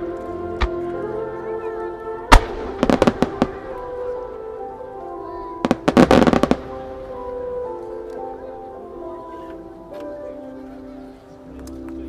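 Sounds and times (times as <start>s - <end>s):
background music: 0.0s - 12.0s
firework stars crackling: 2.3s - 8.0s.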